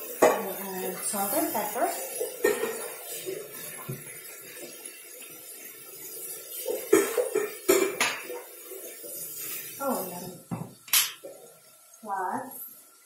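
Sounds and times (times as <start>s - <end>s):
kitchen items clattering: 0.0s - 4.7s, 6.5s - 11.4s.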